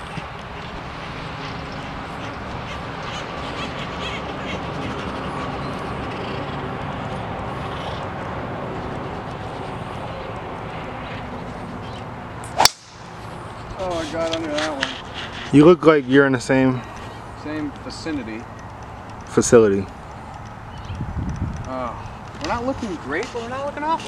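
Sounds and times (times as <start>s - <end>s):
outdoor background noise: 0.0s - 24.0s
faint bird calls: 1.6s - 8.2s.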